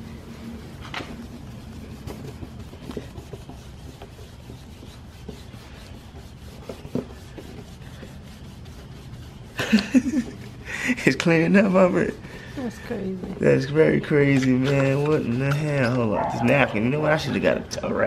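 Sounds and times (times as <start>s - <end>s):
paper towel wiping plastic lens: 0.0s - 12.0s.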